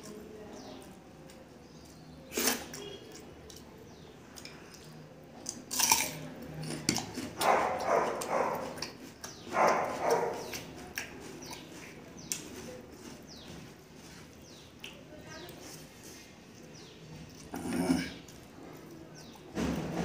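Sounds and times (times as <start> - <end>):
crunchy wet chewing: 0.0 - 20.0
crisp bite into onion: 2.3 - 2.8.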